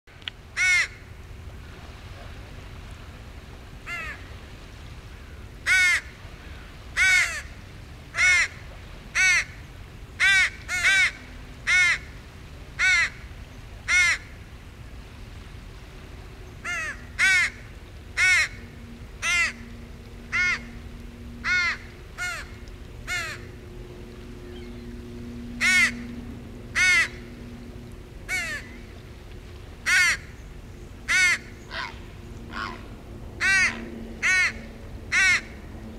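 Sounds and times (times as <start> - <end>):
young crow cawing: 0.6 - 1.0, 3.9 - 4.2, 5.1 - 7.5, 8.2 - 8.6, 9.2 - 9.6, 10.2 - 12.1, 12.8 - 13.2, 13.9 - 14.3, 16.6 - 17.6, 18.2 - 18.6, 19.2 - 19.6, 20.3 - 20.7, 21.4 - 23.5, 25.6 - 26.1, 26.7 - 27.3, 28.3 - 28.8, 29.8 - 30.3, 31.1 - 32.8, 33.4 - 35.6.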